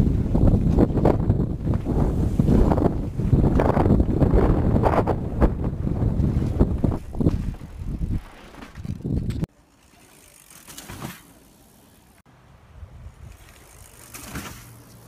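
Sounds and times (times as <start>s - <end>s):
wind rumble: 0.0s - 9.5s
bike tyres rolling on dirt: 0.0s - 12.2s, 13.0s - 15.0s.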